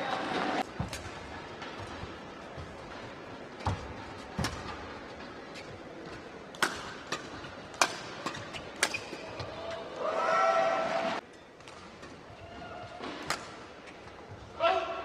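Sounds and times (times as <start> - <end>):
rackets hitting shuttlecock: 0.6 - 9.7, 11.6 - 14.2.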